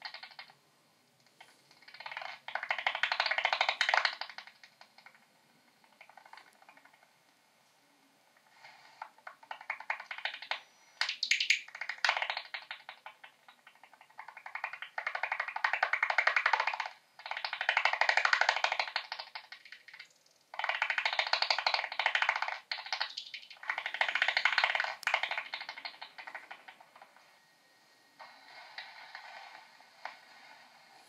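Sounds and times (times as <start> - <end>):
bat echolocation clicks: 1.3 - 5.2, 9.2 - 27.0.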